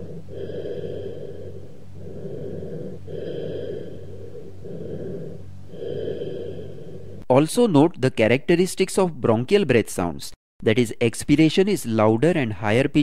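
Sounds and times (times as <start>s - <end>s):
hollow breathing through stethoscope: 0.0s - 7.2s.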